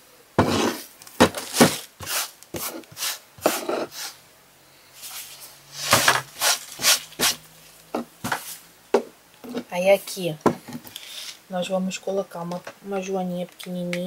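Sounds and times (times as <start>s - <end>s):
scrapes and knocks on tabletop: 0.4s - 1.8s, 3.4s - 4.0s.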